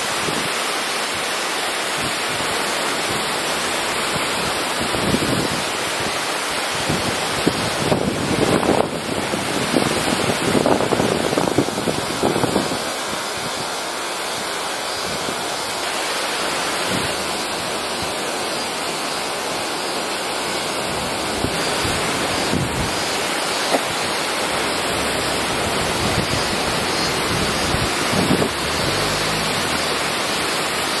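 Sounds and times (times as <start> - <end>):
waterfall roaring: 0.0 - 31.0
wind buffeting microphone: 4.0 - 13.8, 20.6 - 30.4.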